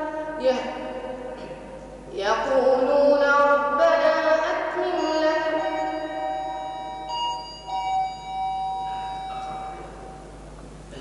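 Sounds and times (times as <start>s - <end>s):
boy chanting melodic recitation: 0.0s - 6.7s.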